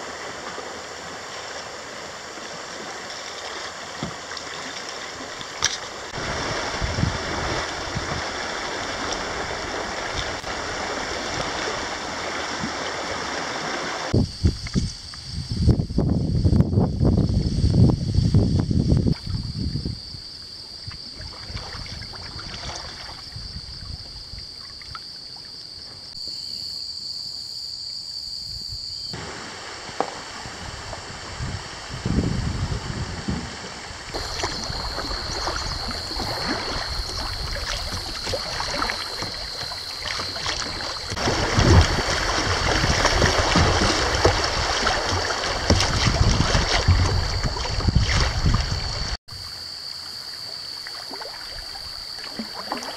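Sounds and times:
paddle splashes: 0.0s - 14.8s, 20.5s - 26.6s, 29.1s - 49.2s, 50.0s - 52.9s
river water rippling: 0.0s - 14.8s, 19.1s - 27.1s, 29.1s - 52.9s
wind on microphone: 6.1s - 13.4s, 14.0s - 20.3s, 30.2s - 49.2s.

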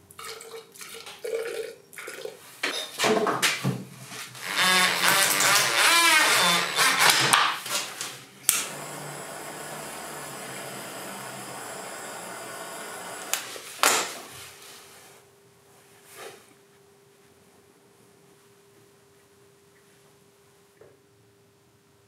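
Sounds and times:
cordless drill whirring: 4.4s - 7.4s, 8.5s - 13.6s
hot-air gun blowing: 4.4s - 7.8s, 8.5s - 14.0s.

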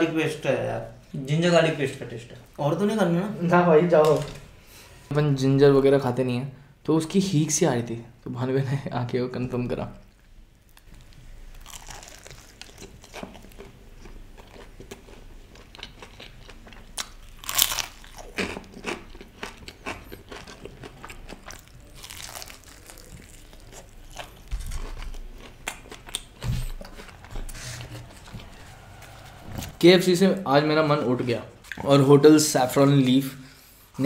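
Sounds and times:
crunching fried chicken: 10.8s - 28.0s.

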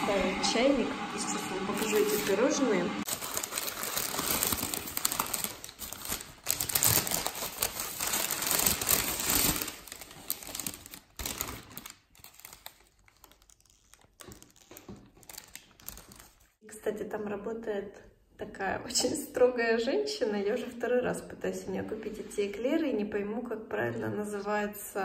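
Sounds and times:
packaging crinkling: 3.0s - 16.6s.

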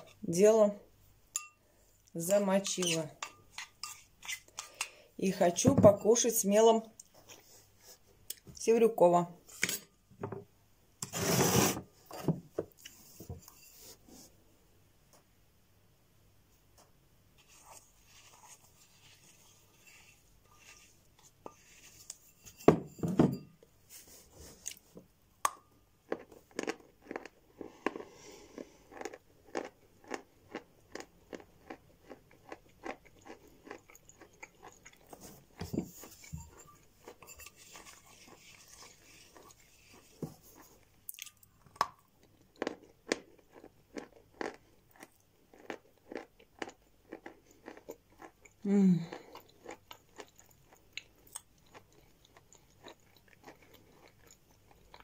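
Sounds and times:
soft scrapes: 11.0s - 14.4s, 17.4s - 23.0s, 23.8s - 25.0s, 35.1s - 40.8s
chalk crunching while chewing: 26.1s - 36.3s, 37.0s - 41.4s, 42.3s - 48.5s.

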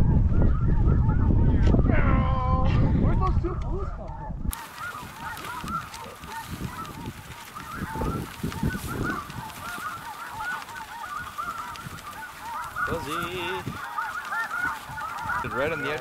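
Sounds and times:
snow geese honking: 4.2s - 16.0s.

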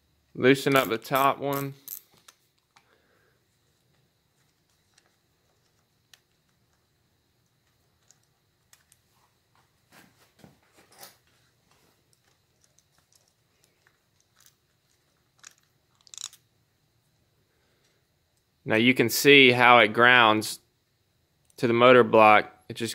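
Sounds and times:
small clicks: 12.1s - 16.4s.

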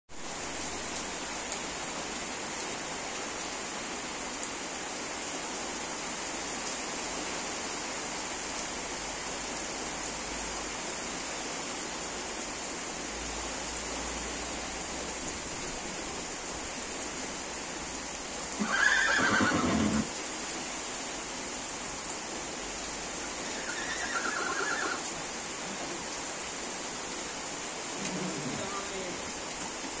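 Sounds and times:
rain on a metal roof: 0.1s - 30.0s
horse whinnying: 18.6s - 20.1s, 23.4s - 25.1s, 28.0s - 28.7s.

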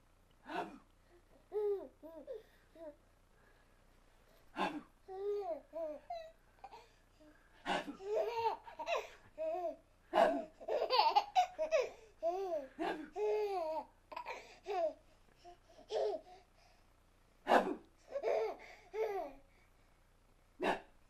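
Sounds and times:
baby laughing and babbling: 1.4s - 3.0s, 7.8s - 16.4s, 18.1s - 19.4s.

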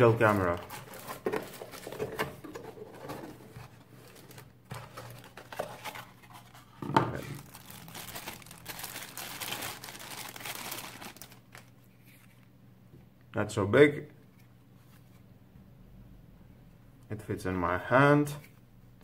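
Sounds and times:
packaging rustling and crackling: 0.0s - 12.3s.

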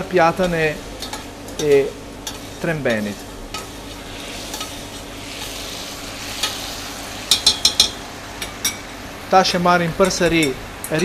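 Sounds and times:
sauce sizzling in a saucepan: 0.0s - 10.9s.

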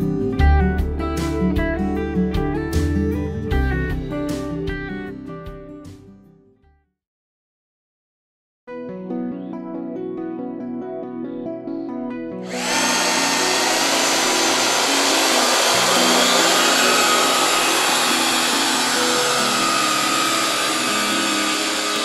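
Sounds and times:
background music: 0.0s - 6.1s, 8.9s - 22.0s
drone propellers whirring: 12.5s - 22.0s.

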